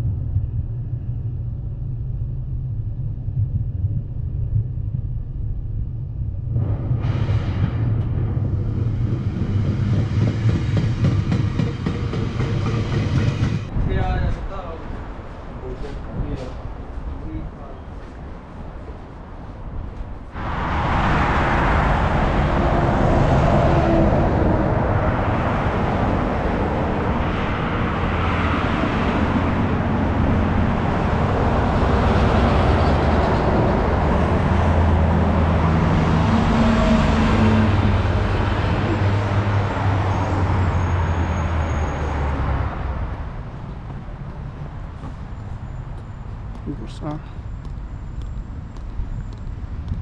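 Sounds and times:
vehicle rushing at speed: 0:06.4 - 0:17.0, 0:20.1 - 0:47.2.

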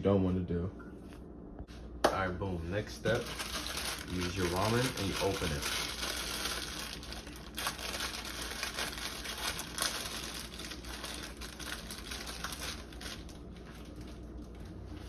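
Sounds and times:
plastic wrapper crinkling: 0:03.0 - 0:14.8.

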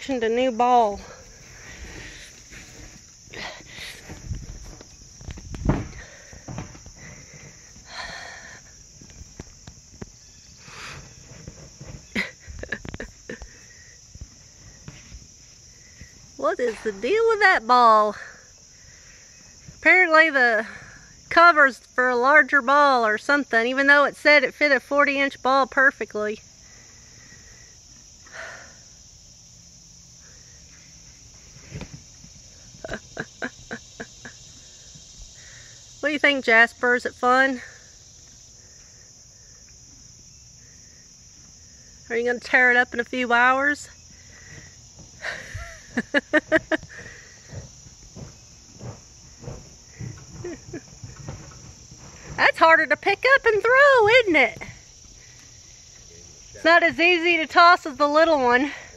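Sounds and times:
insects droning: 0:00.0 - 0:58.9
ball thumping on dirt: 0:04.2 - 0:07.0
hooves and ball scuffing on dirt: 0:08.8 - 0:17.4, 0:30.7 - 0:35.4, 0:44.0 - 0:45.2, 0:45.9 - 0:53.0.

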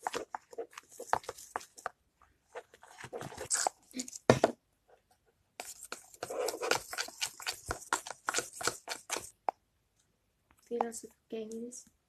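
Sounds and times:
slime squelching and popping: 0:05.6 - 0:09.5.

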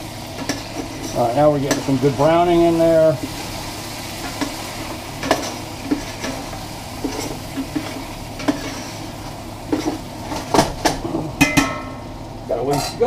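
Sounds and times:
meat sizzling in a pot: 0:00.0 - 0:13.0
spoon knocking and scraping pot: 0:09.7 - 0:11.9.

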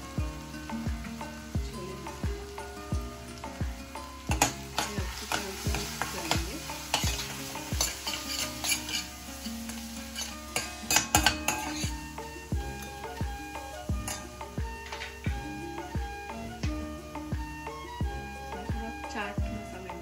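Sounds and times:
masala sizzling in oil: 0:00.0 - 0:20.0
spoon scraping metal pan: 0:04.1 - 0:15.3.

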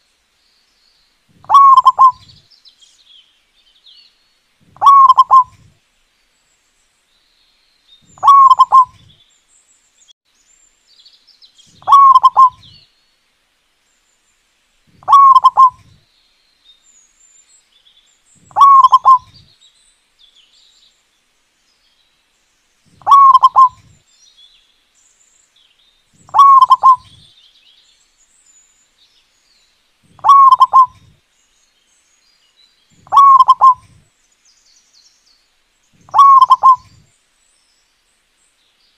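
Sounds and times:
dove cooing: 0:01.4 - 0:02.4, 0:04.8 - 0:05.7, 0:08.2 - 0:09.1, 0:11.8 - 0:12.7, 0:14.9 - 0:16.0, 0:18.5 - 0:19.4, 0:23.0 - 0:24.0, 0:26.3 - 0:27.2, 0:30.1 - 0:31.1, 0:33.0 - 0:34.0, 0:36.0 - 0:37.0.

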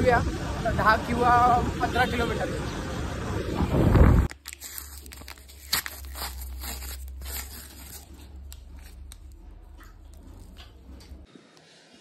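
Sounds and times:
low steady hum: 0:02.7 - 0:11.4
wrapper crinkling and tearing: 0:04.3 - 0:09.4.

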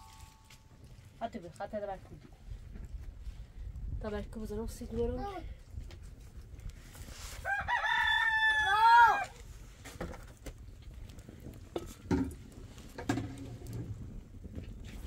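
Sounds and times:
rooster crowing: 0:07.4 - 0:09.3.

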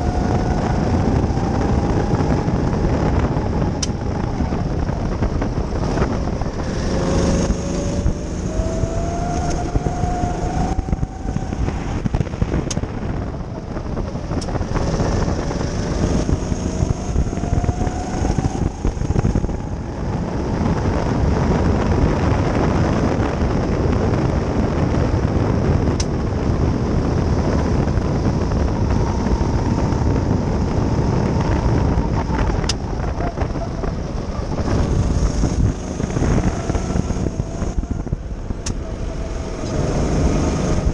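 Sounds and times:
go-kart engine accelerating: 0:00.0 - 0:40.9
road and wind rumble: 0:00.0 - 0:40.9.

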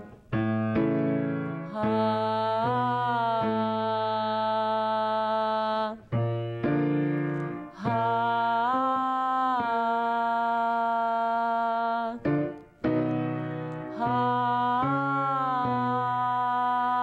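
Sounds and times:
woman singing held notes: 0:01.6 - 0:06.1, 0:07.6 - 0:12.3, 0:13.7 - 0:17.0.

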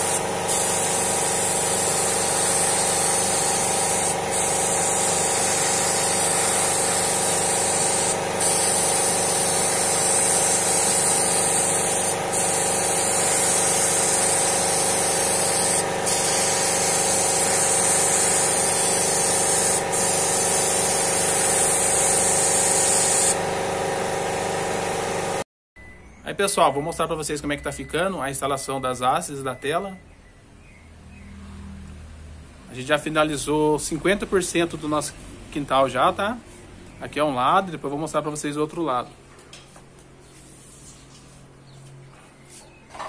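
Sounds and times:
air compressor motor humming: 0:00.0 - 0:25.4
spray gun hissing: 0:00.0 - 0:25.4.

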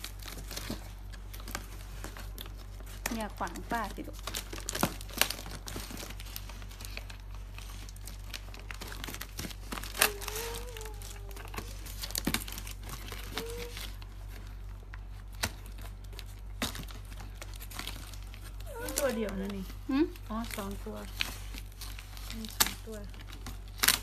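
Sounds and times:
cardboard box being torn open: 0:08.6 - 0:14.0.

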